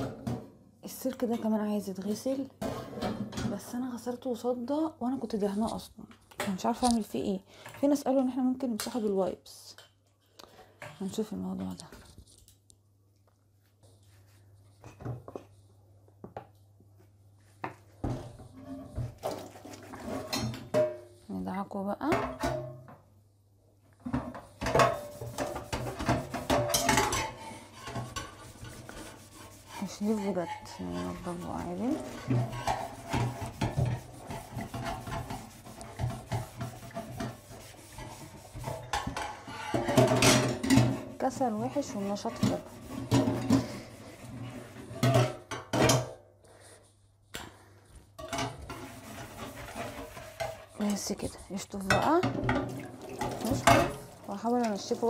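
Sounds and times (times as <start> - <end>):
sponge rubbing on metal rack: 24.5 - 40.2, 41.3 - 45.0, 48.6 - 51.8.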